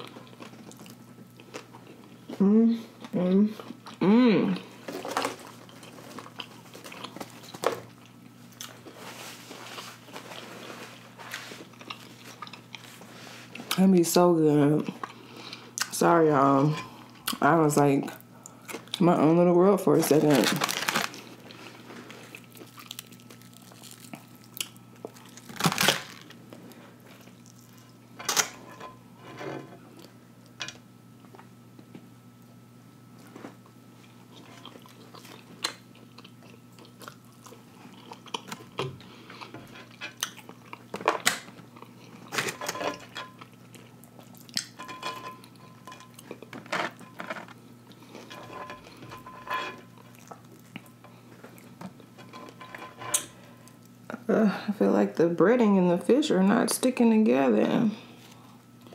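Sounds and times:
faint steady hum: 0.0 - 58.9
crunchy chewing: 4.6 - 9.0, 9.6 - 13.6, 20.7 - 28.0, 34.0 - 44.8.

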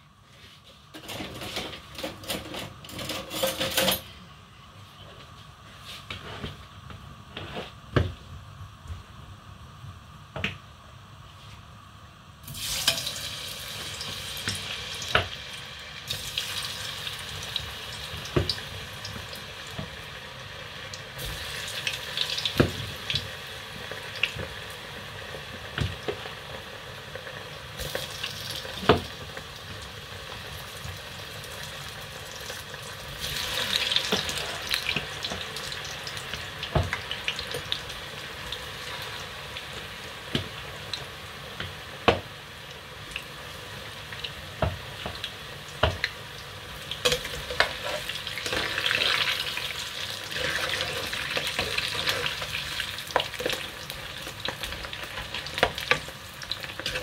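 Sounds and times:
hot oil sizzling: 12.4 - 57.0.

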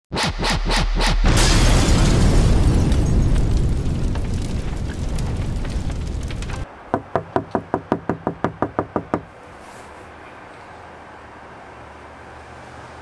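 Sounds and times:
logo boom: 0.1 - 4.8.

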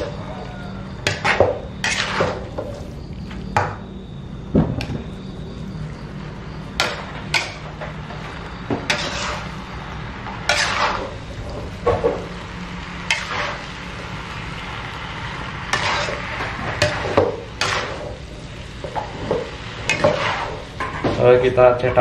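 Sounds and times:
metal spatula scraping a wok: 1.0 - 2.9, 6.8 - 12.3, 13.0 - 21.2.

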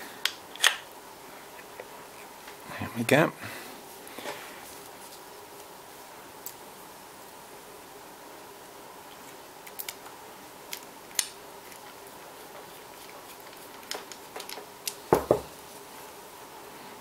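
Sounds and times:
louder knocks: 15.1 - 15.5.

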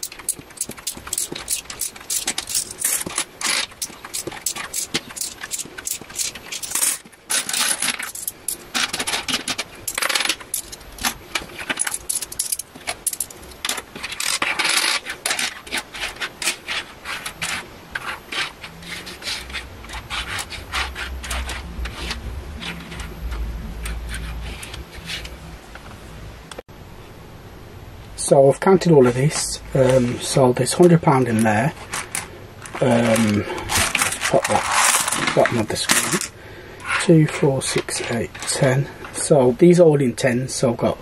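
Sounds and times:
coins clinking on a desk: 0.0 - 10.8.

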